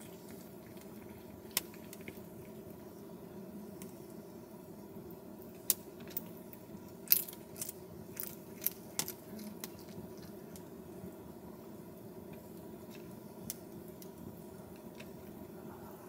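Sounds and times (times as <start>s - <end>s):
cat chewing crunchy food: 0.0s - 2.7s, 7.0s - 11.0s
low steady hum: 0.0s - 16.0s.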